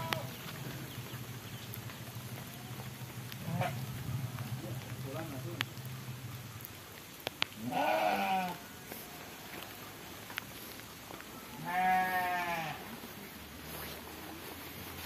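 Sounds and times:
livestock bleating: 0.0 - 0.4, 7.6 - 8.6, 11.6 - 12.9.

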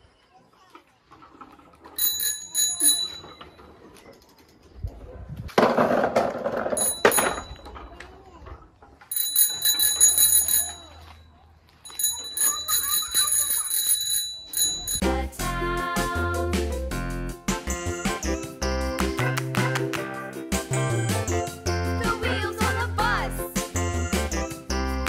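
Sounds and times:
bicycle bell ringing: 2.0 - 3.7, 6.8 - 7.8, 9.1 - 15.0.

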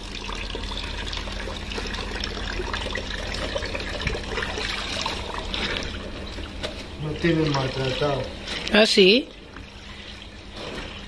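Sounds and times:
tap water running into sink: 0.0 - 8.4
clothes sloshing in water: 3.9 - 11.0.

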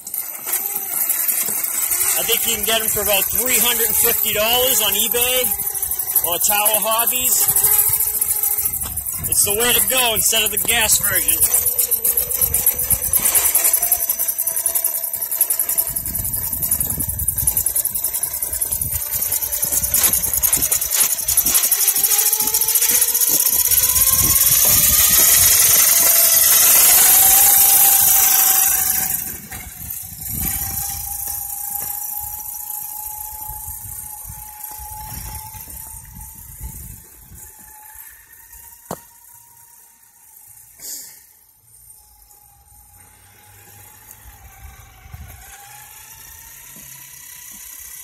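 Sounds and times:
electric motor whining: 0.0 - 48.0.

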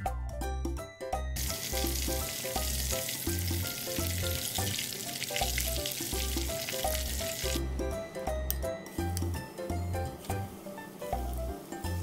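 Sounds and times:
chicken deep-frying in oil: 1.4 - 7.6.

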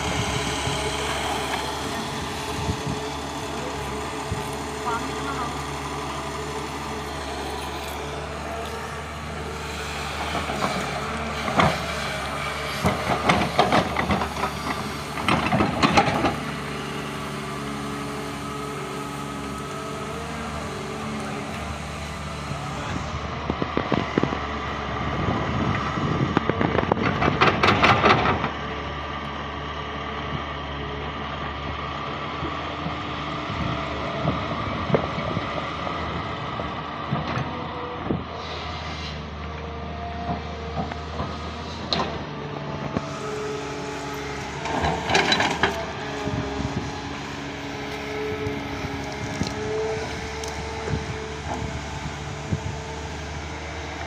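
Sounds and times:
excavator diesel engine running: 0.0 - 54.0
excavator bucket clanking and scraping: 10.1 - 17.0, 26.1 - 28.7, 40.1 - 46.8.

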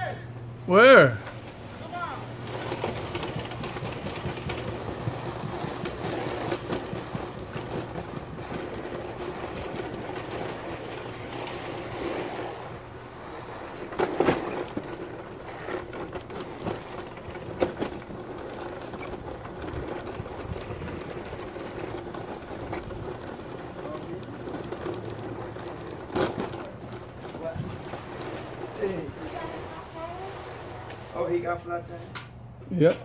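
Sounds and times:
lawn mower engine running: 0.2 - 31.5.

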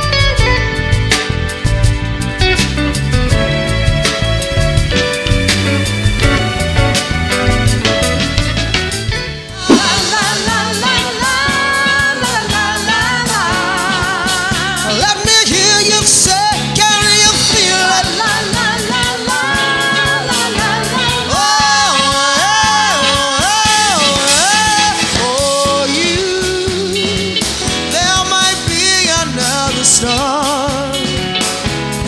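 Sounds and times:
band playing: 0.0 - 32.0
woman singing with vibrato: 9.6 - 26.9.

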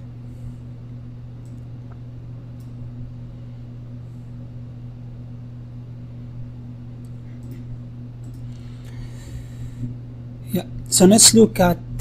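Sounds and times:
low equipment hum: 0.0 - 12.0
faint clicks: 7.0 - 9.0.

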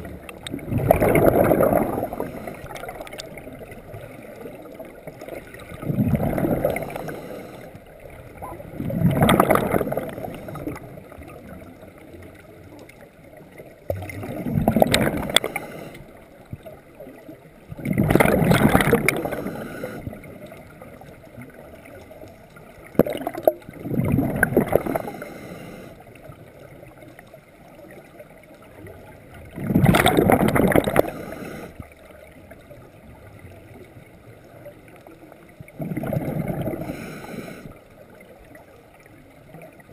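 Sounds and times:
exhaled bubbles rushing: 0.0 - 12.4, 13.7 - 15.9, 17.7 - 25.4, 28.7 - 33.8, 35.6 - 37.7
diver breathing through regulator: 6.2 - 7.8, 15.2 - 16.1, 19.0 - 20.2, 24.7 - 26.0, 30.7 - 31.8, 36.4 - 37.8.

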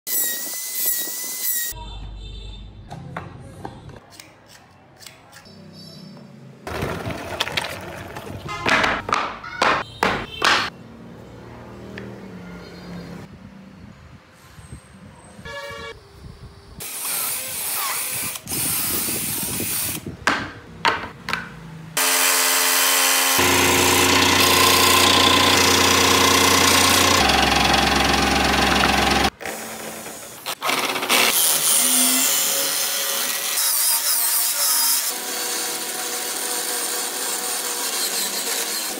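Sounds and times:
sharp knocks and taps: 20.3 - 21.6
chisel cutting spinning wood: 22.0 - 31.3
power tool motor running: 22.0 - 31.6
drill boring into wood: 22.0 - 32.3.

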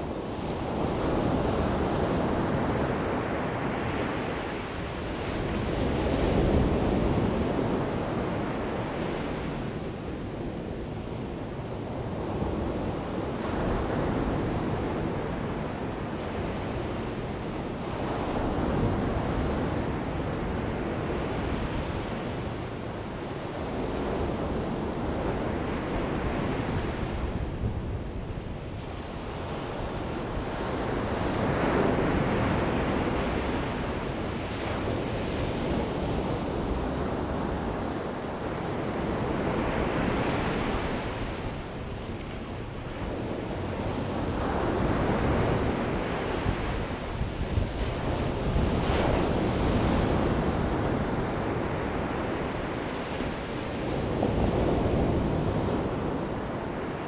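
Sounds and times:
wind rumbling on microphone: 0.0 - 57.0.

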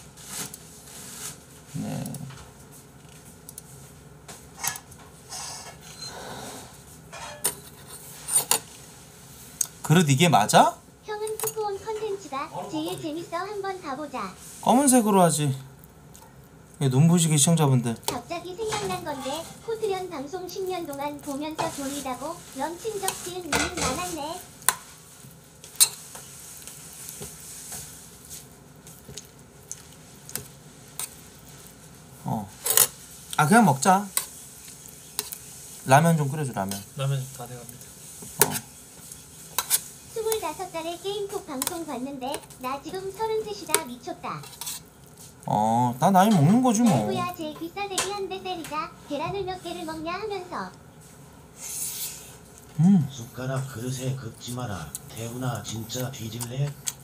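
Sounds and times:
spoon clinking and scraping metal: 7.1 - 8.7.

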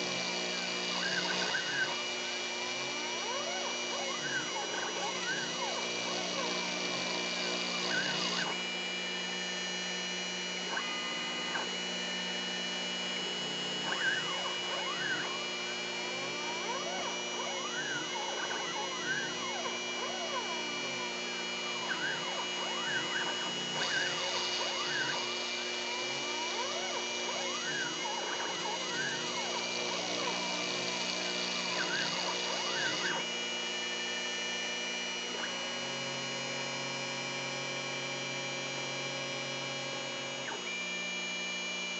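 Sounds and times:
stepper motors whining: 0.0 - 9.7, 10.5 - 33.3
steady hum with high tones: 0.0 - 41.9.

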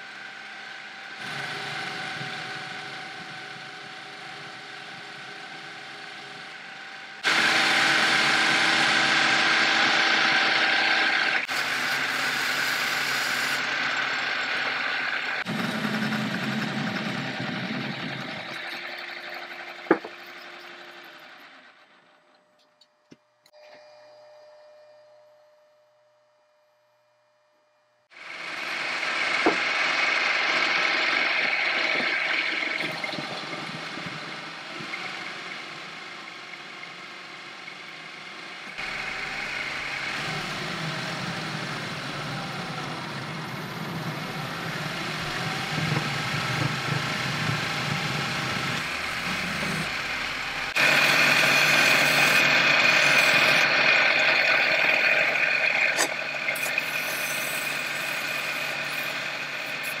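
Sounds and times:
metal lathe cutting: 0.0 - 22.2, 28.1 - 60.0
sanding spinning part: 28.2 - 60.0.

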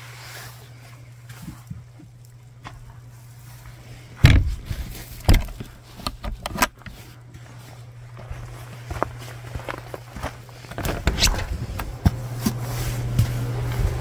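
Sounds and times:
wooden door thumping shut: 4.2 - 4.7.

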